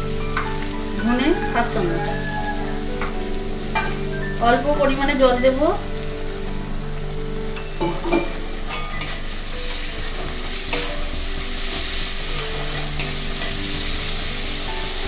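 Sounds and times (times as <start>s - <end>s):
masala sizzling in a pan: 0.0s - 15.0s
metal spatula scraping pan: 7.7s - 14.1s.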